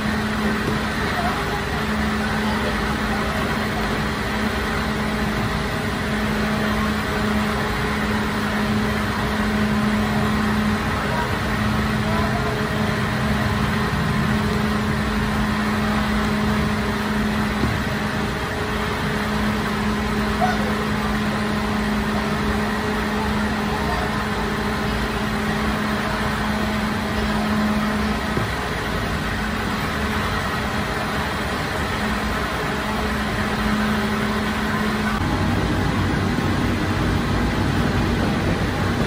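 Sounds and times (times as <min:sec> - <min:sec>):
bakery machinery humming: 0:00.0 - 0:39.0.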